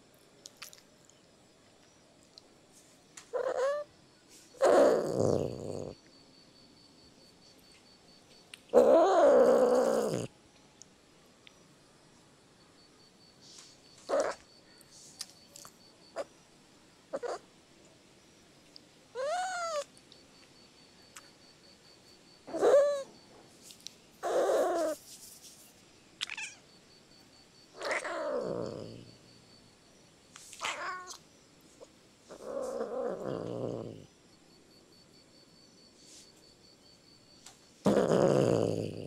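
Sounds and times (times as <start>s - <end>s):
cat meowing: 3.4s - 3.9s, 19.2s - 19.9s, 26.2s - 26.6s, 27.8s - 29.0s, 30.6s - 31.2s.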